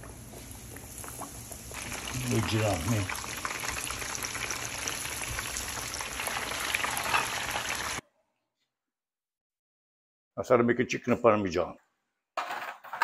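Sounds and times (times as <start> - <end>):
chicken sizzling in hot oil: 0.0 - 8.0.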